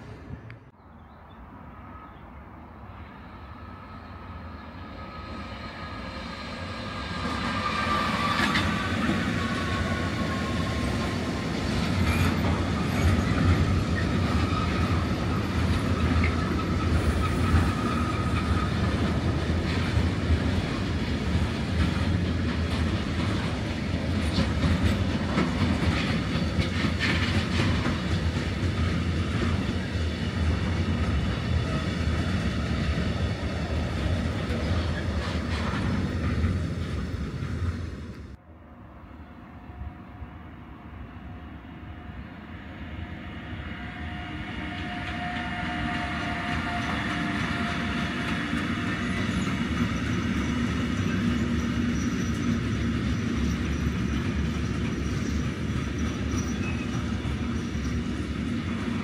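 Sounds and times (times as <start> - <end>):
freight train wheels rumbling: 3.1 - 38.4, 39.8 - 59.0
wheel squeal: 12.0 - 18.8, 48.6 - 58.2.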